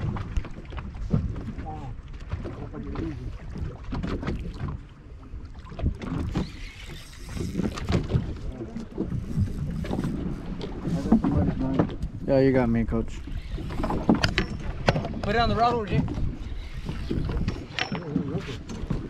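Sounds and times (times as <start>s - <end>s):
knocks and bumps on boat: 0.0s - 4.9s, 7.5s - 12.3s, 13.8s - 19.0s
wind rumble on microphone: 0.0s - 19.0s.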